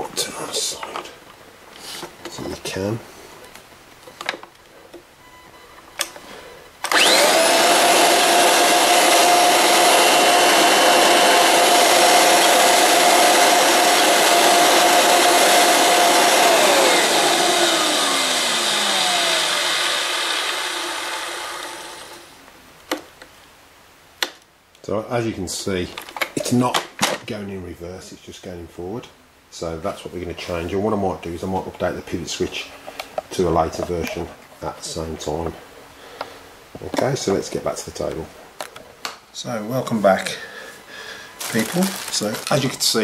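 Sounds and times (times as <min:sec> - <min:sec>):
vacuum cleaner motor whining: 0:06.8 - 0:22.4.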